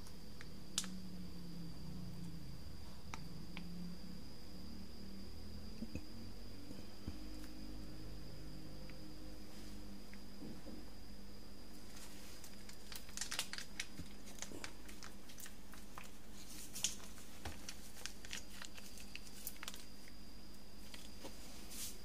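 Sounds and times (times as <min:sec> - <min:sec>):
faint background hum: 0:00.0 - 0:22.0
food container crinkling: 0:11.9 - 0:19.9.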